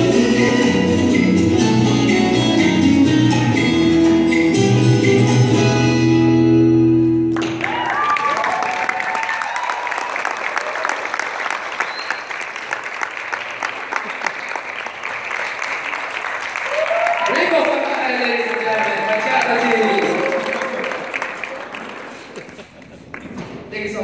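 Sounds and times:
salsa music: 0.0s - 7.3s
audience applause: 7.3s - 23.4s
whoops and cheers: 7.4s - 11.2s, 16.6s - 17.7s, 19.6s - 21.2s.

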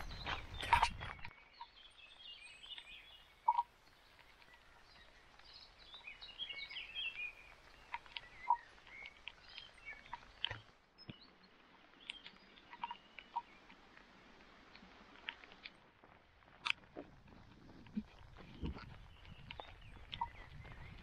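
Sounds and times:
songbirds chirping and trilling: 0.0s - 21.0s.

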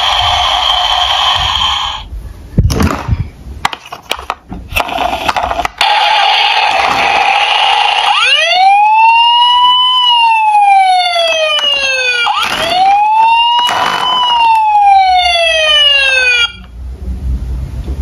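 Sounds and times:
toy police siren wailing: 0.0s - 2.0s, 5.8s - 16.7s.

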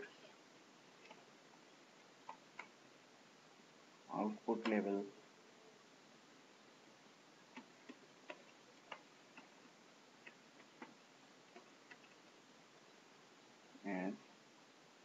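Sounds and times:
faint keyboard keystrokes: 10.2s - 12.3s.

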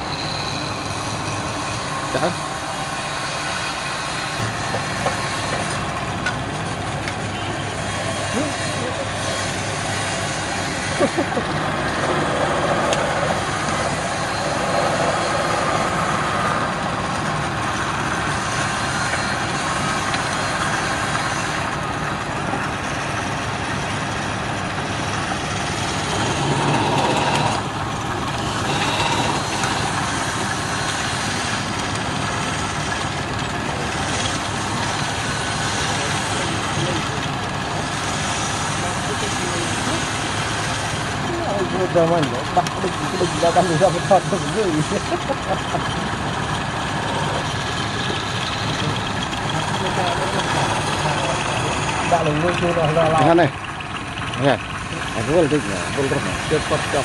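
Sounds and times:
chisel rasping on spinning wood: 0.0s - 6.0s, 7.7s - 57.0s
lathe motor hum: 0.0s - 57.0s
sharp knocks: 4.4s - 6.4s.

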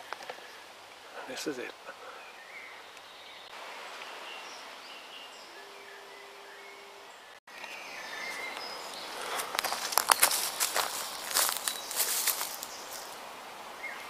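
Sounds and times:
low hum: 5.3s - 7.4s
footsteps crunching on leaf litter: 7.6s - 13.2s.

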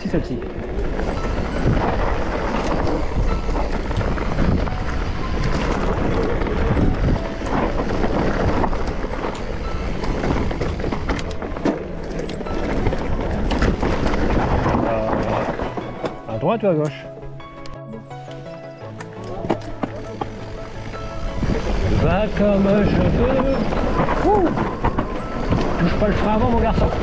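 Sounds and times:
bike tyre noise on trail: 0.0s - 16.4s, 19.1s - 27.0s
bike rattling over stones: 0.0s - 17.0s, 19.1s - 27.0s
wind buffeting microphone: 0.6s - 16.0s, 20.4s - 27.0s.

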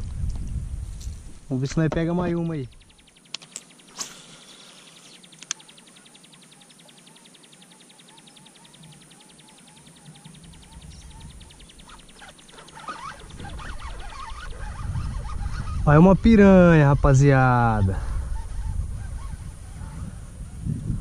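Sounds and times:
sharp clicks: 2.8s - 4.3s, 5.0s - 7.0s.

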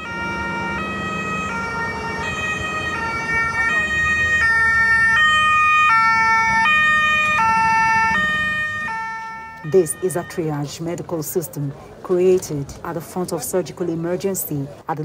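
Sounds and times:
two-tone siren: 0.0s - 11.8s.

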